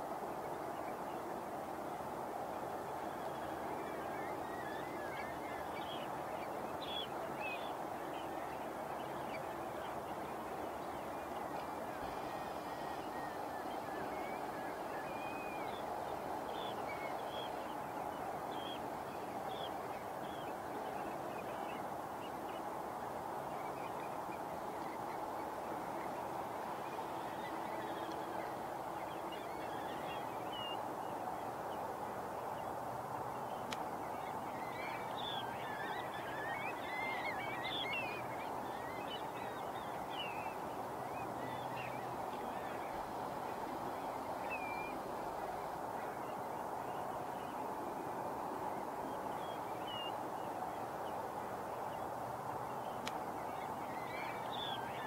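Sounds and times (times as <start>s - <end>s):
background noise wash: 0.0s - 55.0s
water birds calling: 0.0s - 55.0s.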